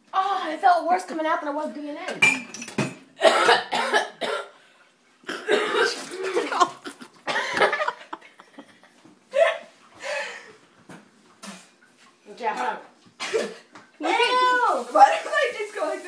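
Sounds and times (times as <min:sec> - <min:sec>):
girl coughing: 0:03.2 - 0:04.6, 0:05.3 - 0:07.6, 0:13.2 - 0:13.7.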